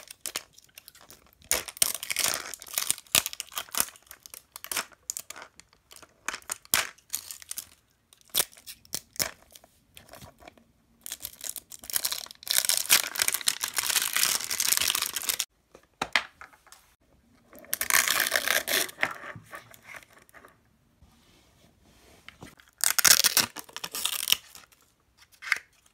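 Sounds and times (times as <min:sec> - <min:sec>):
plastic wrap crinkling: 0:11.3 - 0:15.5.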